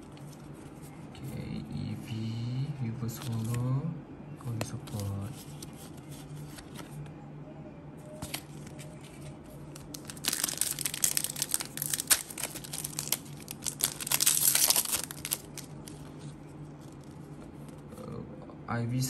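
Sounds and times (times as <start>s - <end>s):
faint steady hum: 0.0s - 19.0s
foil wrapper crinkling and tearing: 9.7s - 16.1s.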